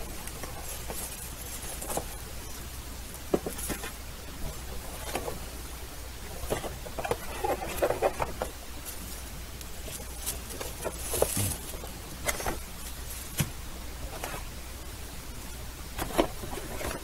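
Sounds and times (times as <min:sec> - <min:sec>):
plastic wrapping rustling: 0:00.0 - 0:05.5, 0:06.2 - 0:14.5
cardboard scraping and knocking: 0:10.0 - 0:12.6.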